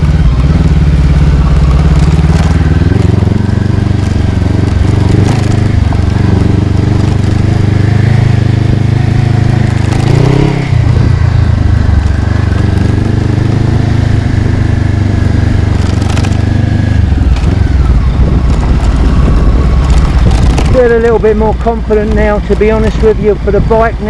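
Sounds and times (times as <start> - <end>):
motorcycle engine running: 0.0 - 24.0.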